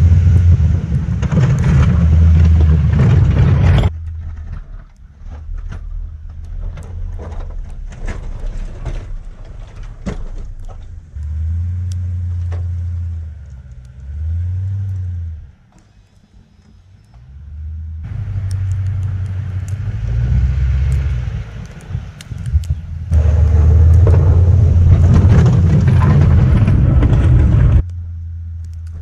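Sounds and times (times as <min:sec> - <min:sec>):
snow pushed by plow blade: 0:00.0 - 0:29.0
wind rumble on microphone: 0:18.1 - 0:27.9
pickup truck engine running: 0:22.5 - 0:29.0.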